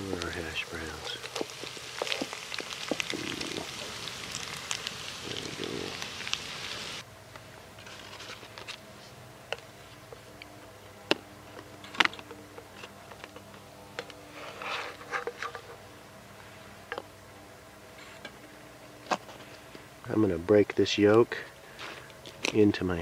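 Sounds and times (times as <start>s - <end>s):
food sizzling in skillet: 0.0s - 7.0s
spatula scraping skillet: 14.3s - 15.8s.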